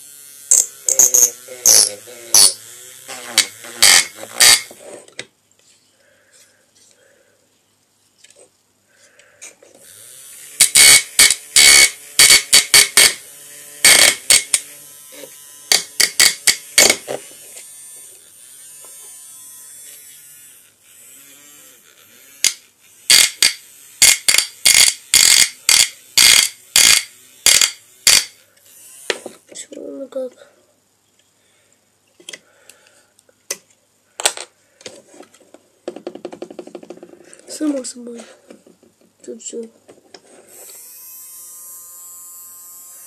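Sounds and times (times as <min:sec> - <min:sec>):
small electric saw motor buzzing: 0:00.0 - 0:05.0, 0:09.8 - 0:29.6, 0:40.3 - 0:43.0.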